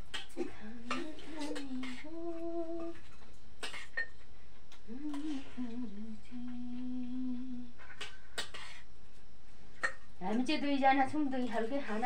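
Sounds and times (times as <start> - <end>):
person humming: 0.4 - 3.1, 4.8 - 8.2.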